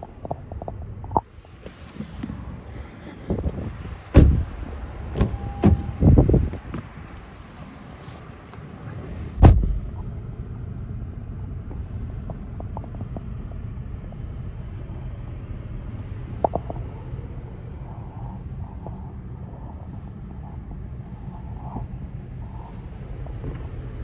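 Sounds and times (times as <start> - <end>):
steady low rumble: 0.0 - 24.0
car door shutting: 3.3 - 6.9, 9.4 - 10.0, 23.4 - 23.9.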